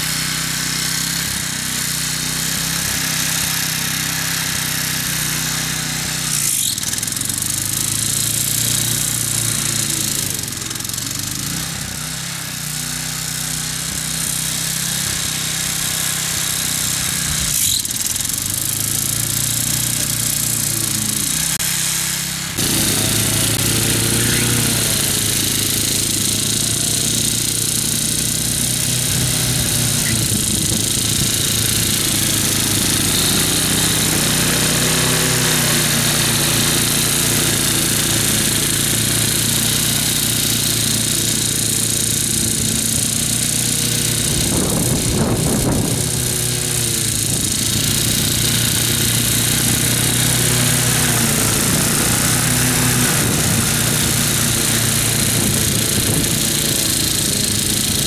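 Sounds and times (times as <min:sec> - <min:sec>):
riding mower engine mowing grass: 0:00.0 - 0:58.0.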